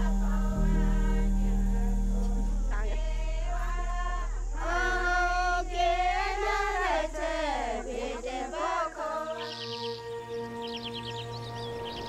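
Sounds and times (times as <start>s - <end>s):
steady low drone: 0.0s - 9.4s
person singing melismatic melody: 0.0s - 12.0s.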